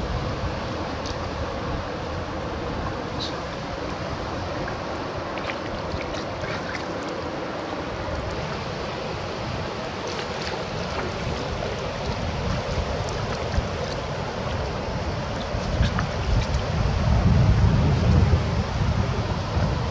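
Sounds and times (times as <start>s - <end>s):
water rushing on shoreline: 0.0s - 19.9s
wind buffeting microphone: 0.0s - 19.9s
fish thrashing and splashing: 4.6s - 9.0s, 9.6s - 16.7s.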